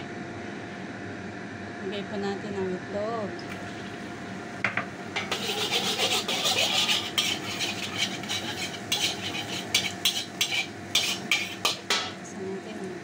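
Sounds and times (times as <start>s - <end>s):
eggs sizzling in hot oil: 3.6s - 12.2s
metal spatula scraping pan: 5.2s - 12.2s.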